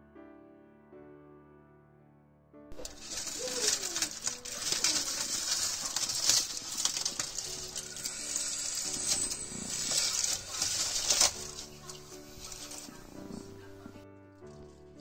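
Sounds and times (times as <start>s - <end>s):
hot fat crackling and spitting: 2.7s - 15.0s
steak sizzling in a pan: 5.0s - 13.6s.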